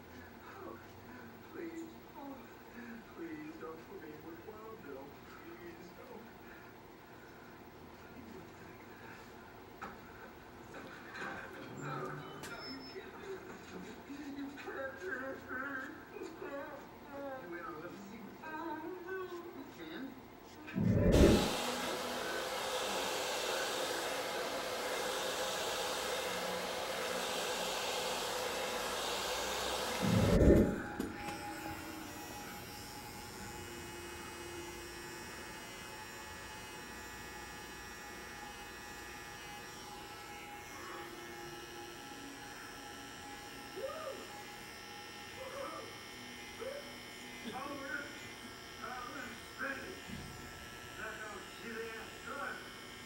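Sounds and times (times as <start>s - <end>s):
hair dryer blowing: 20.8s - 45.4s
electric hair clippers buzzing: 20.8s - 53.0s.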